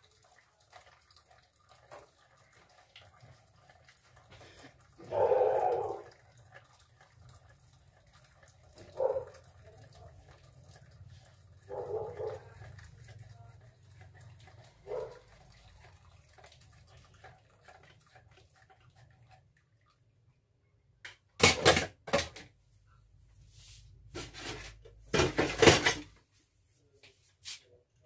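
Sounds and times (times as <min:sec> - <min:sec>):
dishes and pans clattering: 0:21.4 - 0:22.5, 0:24.2 - 0:26.2.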